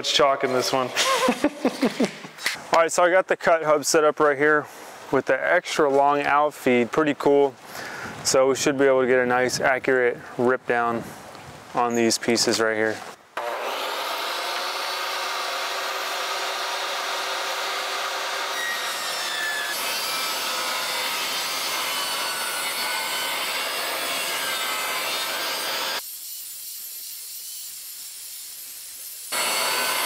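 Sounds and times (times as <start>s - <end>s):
table saw cutting wood: 13.4s - 28.6s, 29.2s - 30.0s.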